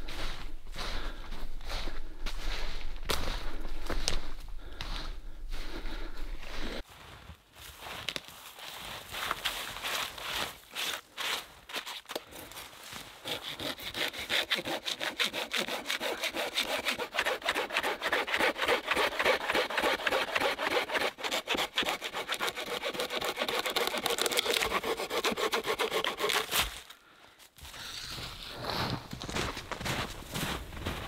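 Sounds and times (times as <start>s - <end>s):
hand saw cutting log: 13.2s - 26.8s.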